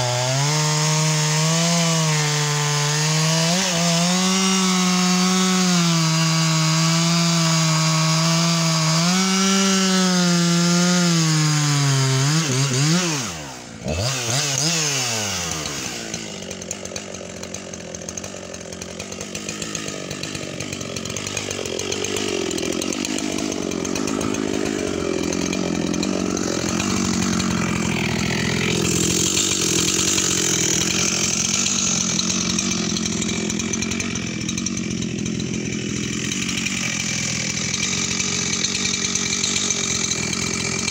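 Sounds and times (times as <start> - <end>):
chainsaw cutting log: 0.0 - 40.9
chainsaw idling: 0.0 - 40.9.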